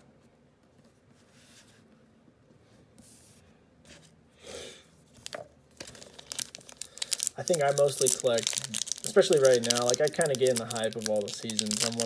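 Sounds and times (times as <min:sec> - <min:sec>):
plastic wrapper crinkling: 0:05.2 - 0:12.0.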